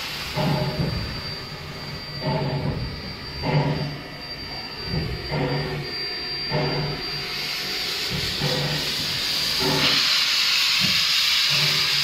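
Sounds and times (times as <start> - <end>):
hiss of steam: 0.0 - 2.6, 6.5 - 12.0
steam locomotive exhaust chuffs: 0.0 - 12.0.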